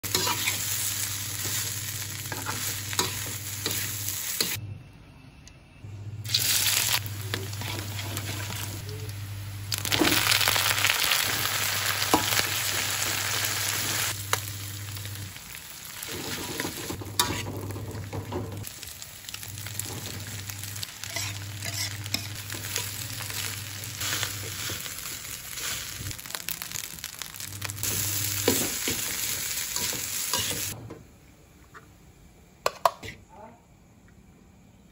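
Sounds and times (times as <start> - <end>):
food sizzling in a wok: 0.0 - 4.6, 6.2 - 30.8
metal spatula scraping pan: 21.0 - 22.8.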